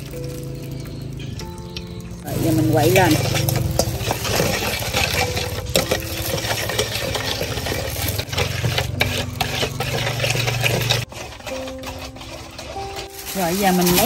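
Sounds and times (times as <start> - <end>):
spoon stirring in a bowl: 2.3 - 14.0.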